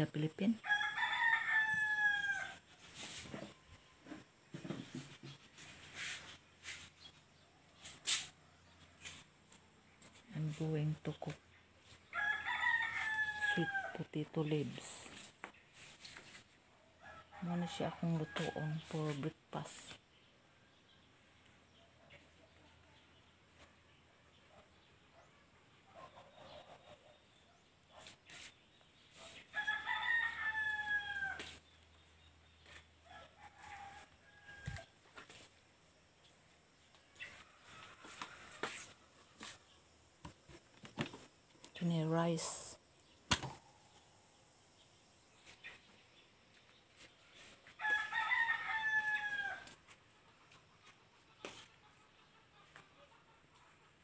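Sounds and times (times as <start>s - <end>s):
rooster crowing: 0.6s - 2.6s, 12.1s - 13.9s, 29.5s - 31.6s, 47.8s - 49.8s.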